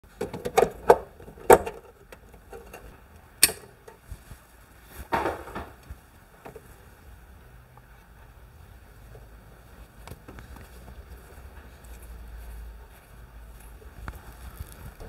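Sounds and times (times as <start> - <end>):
plastic breakers clicking onto rail: 0.2 - 4.0
scraping rustle: 9.0 - 15.0.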